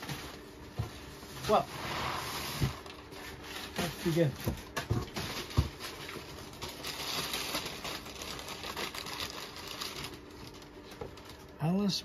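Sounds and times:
packing paper crinkling: 2.6 - 11.9.

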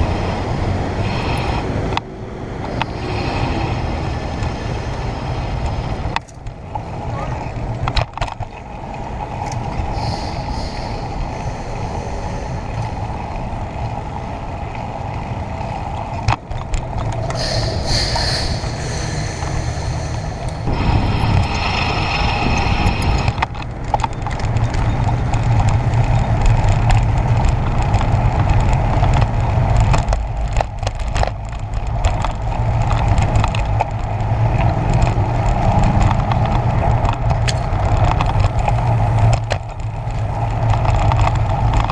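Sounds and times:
bicycle tyre noise: 0.0 - 1.9, 2.7 - 41.9
wind on microphone: 8.8 - 41.9.

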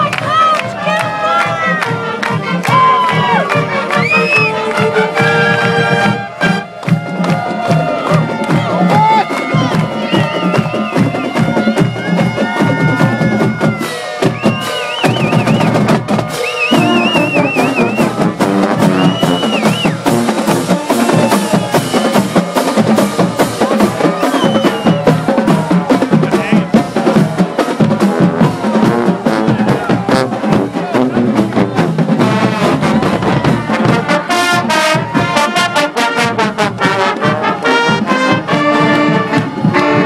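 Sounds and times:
marching band playing: 0.0 - 40.0
saxophones: 1.8 - 15.7
snare drums: 1.8 - 40.0
bass drum: 2.4 - 40.0.

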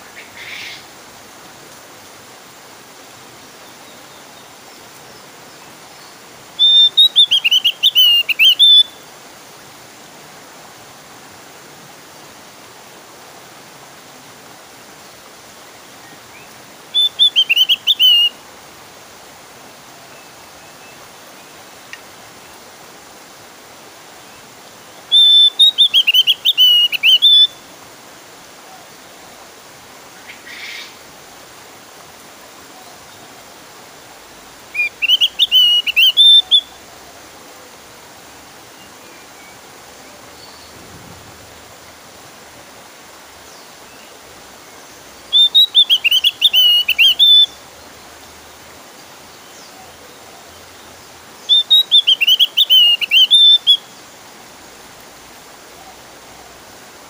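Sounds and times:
bird warbling song: 5.5 - 9.0, 16.3 - 18.4, 25.0 - 27.6, 34.7 - 36.8, 45.2 - 47.6, 49.3 - 53.9.

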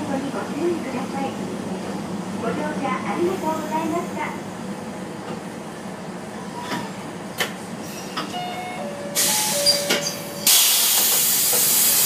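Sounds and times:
compressed air hissing: 10.4 - 12.0.

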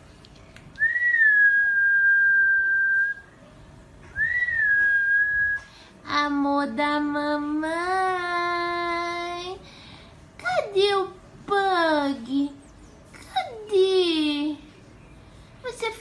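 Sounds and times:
person whistling: 0.8 - 3.3, 4.1 - 5.7.

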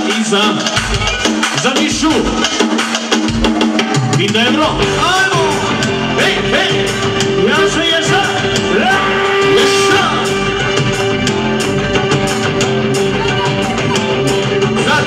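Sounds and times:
steady drumbeat: 0.0 - 15.0
person singing: 8.3 - 10.4
saxophone melody: 8.4 - 14.4.

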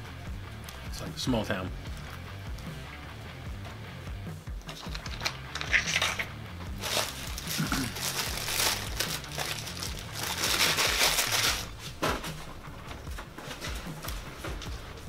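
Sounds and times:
paper wrapper crinkling: 4.7 - 12.0.

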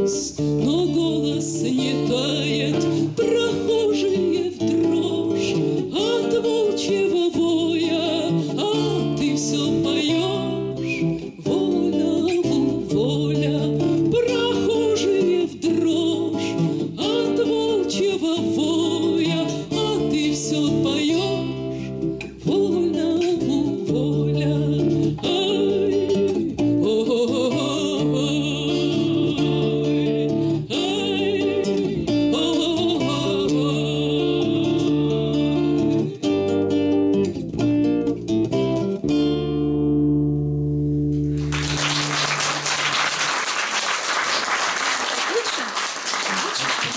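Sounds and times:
woman singing: 0.0 - 36.5
acoustic guitar: 0.0 - 46.9
audience applauding: 41.3 - 46.9.

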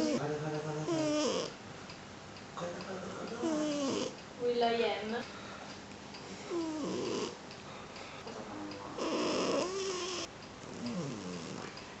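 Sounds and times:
cat snoring: 0.0 - 1.6, 3.4 - 4.2, 6.4 - 7.4, 8.9 - 11.7.

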